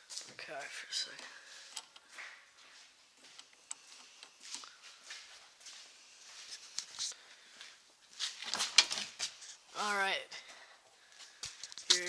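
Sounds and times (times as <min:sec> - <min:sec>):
shuffling footsteps: 0:00.0 - 0:09.8
rustling: 0:04.0 - 0:09.8.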